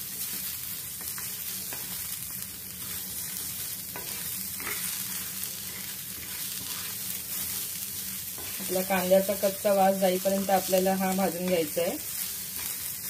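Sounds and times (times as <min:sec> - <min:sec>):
spatula scraping on iron griddle: 0:03.9 - 0:08.9.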